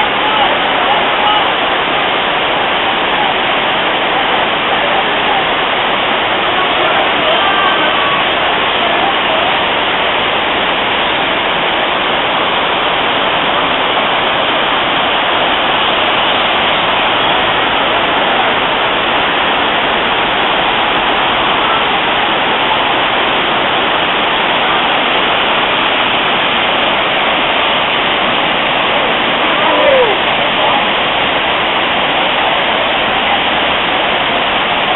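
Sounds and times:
waterfall rushing: 0.0 - 34.9.

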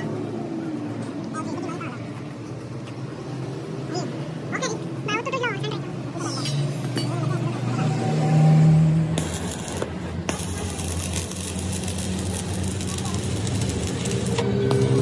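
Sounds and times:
welding arc crackling: 9.2 - 15.0.

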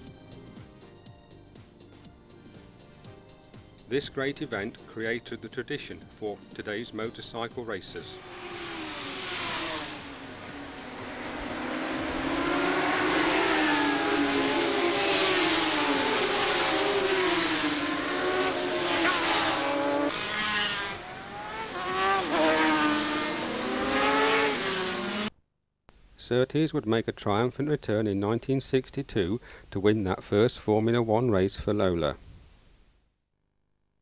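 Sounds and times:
racing motorcycles passing: 6.6 - 25.3.

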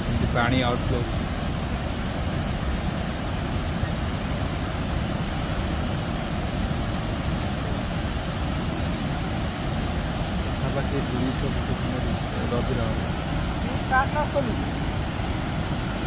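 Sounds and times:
water rushing from dam spillway: 0.0 - 16.0.

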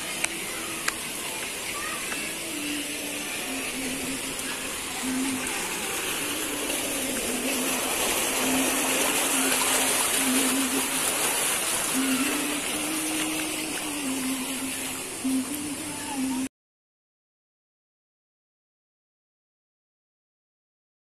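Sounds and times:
running water rushing: 0.0 - 16.5.

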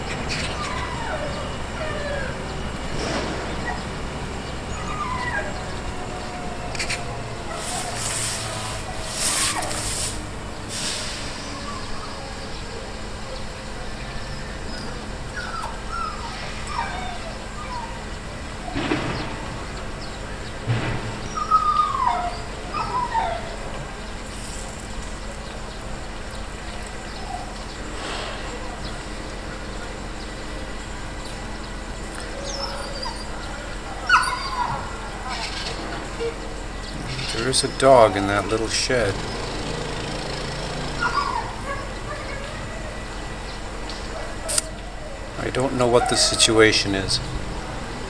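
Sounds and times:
distant traffic-like background noise: 0.0 - 48.0
steady low hum: 0.0 - 48.0
dog whining: 0.3 - 2.8, 3.5 - 9.8, 11.4 - 18.8, 21.2 - 24.0, 26.8 - 29.1, 32.2 - 39.4, 40.7 - 47.2
rustling: 7.6 - 10.2.

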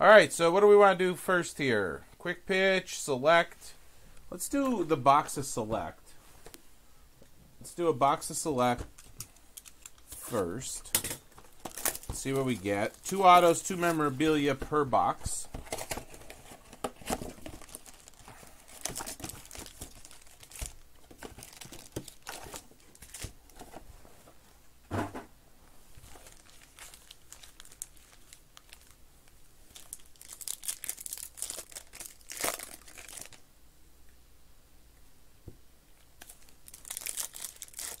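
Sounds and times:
pack wrappers crinkling: 8.9 - 10.3, 11.3 - 14.4, 15.4 - 23.7, 26.0 - 33.4, 36.2 - 38.0
wrapper tearing: 11.5 - 14.0, 15.7 - 23.6, 26.0 - 29.0, 29.7 - 33.4, 36.2 - 38.0.

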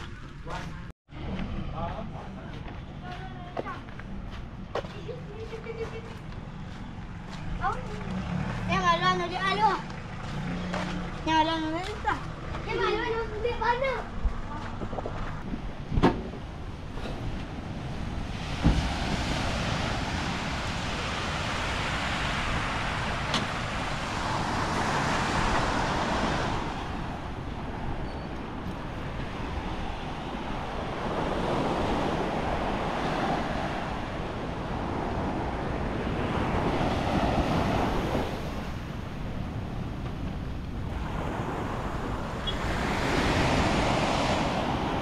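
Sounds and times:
wind buffeting microphone: 10.9 - 45.0
small waves washing onto beach: 16.8 - 45.0.

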